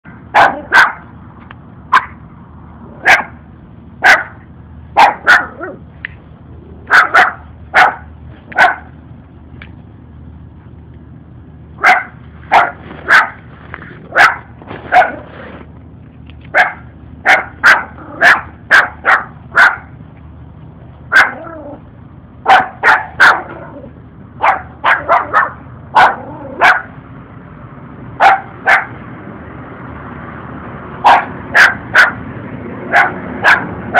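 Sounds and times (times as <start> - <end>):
puppy barking: 0.1 - 1.1, 1.9 - 2.2, 3.0 - 3.4, 4.0 - 4.4, 5.0 - 5.8, 6.8 - 9.0, 11.8 - 13.4, 14.1 - 15.3, 16.5 - 20.0, 21.1 - 21.8, 22.4 - 27.0, 28.2 - 29.0, 31.0 - 32.2, 32.9 - 33.9.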